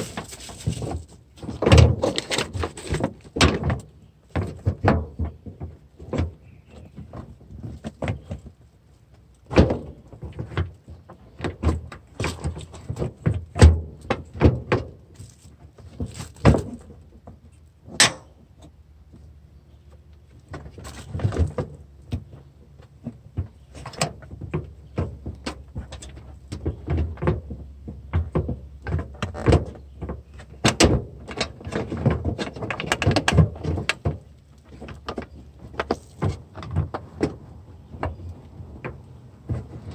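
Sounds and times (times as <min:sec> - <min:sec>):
hands handling plastic parts: 0:00.0 - 0:19.2.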